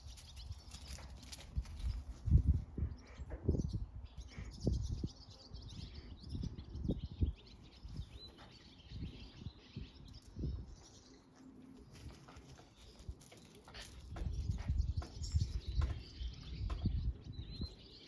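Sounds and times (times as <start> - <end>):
birds chirping: 0.0 - 18.0
low thumps and rumbles: 14.0 - 17.6.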